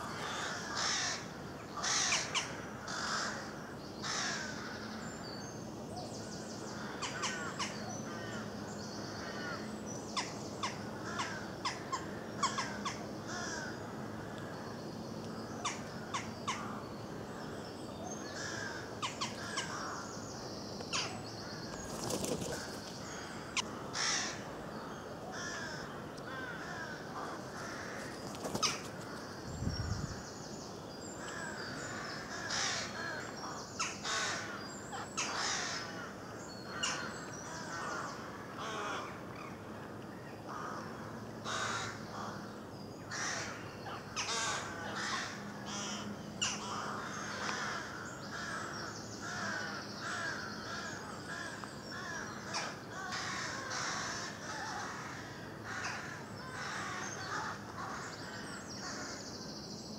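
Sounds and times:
rooks cawing: 0.0s - 5.0s, 6.7s - 14.8s, 15.6s - 29.5s, 31.1s - 39.6s, 40.5s - 59.4s
small birds chirping and singing: 14.3s - 23.7s, 24.6s - 38.3s.

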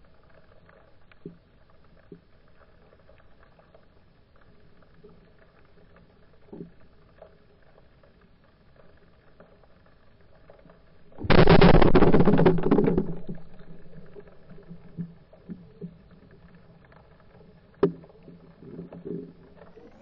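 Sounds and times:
speargun firing underwater: 11.2s - 14.3s.

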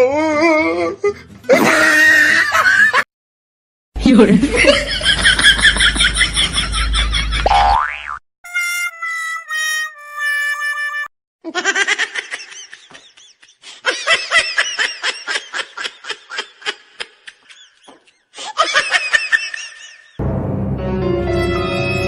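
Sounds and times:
high-pitched laughter: 1.5s - 3.0s, 10.7s - 20.2s.

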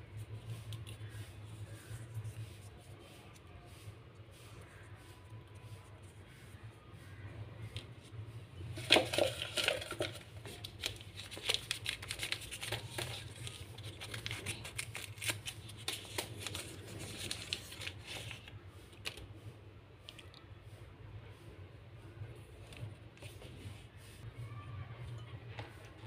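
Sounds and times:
paper packets crinkling: 8.8s - 19.3s.

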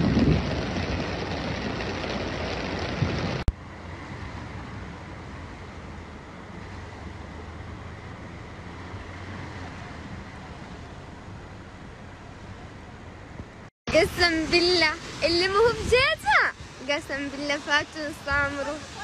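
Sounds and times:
low engine hum: 0.0s - 19.0s
heavy rain and floodwater rushing: 13.9s - 19.0s.

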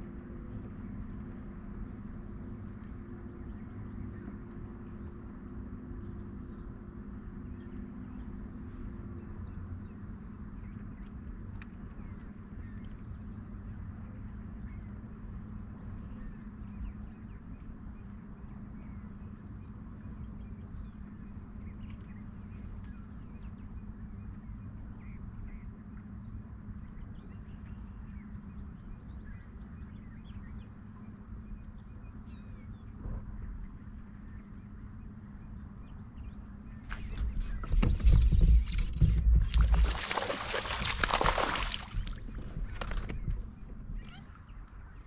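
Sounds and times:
low hum: 0.0s - 45.0s
faint bird chirps: 18.8s - 45.0s.

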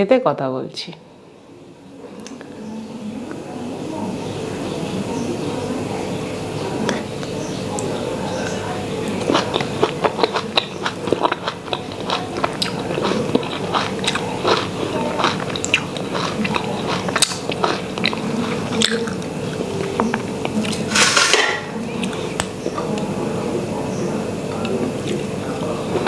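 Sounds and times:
person chewing wet mouth clicks: 7.8s - 20.8s, 22.0s - 23.1s.

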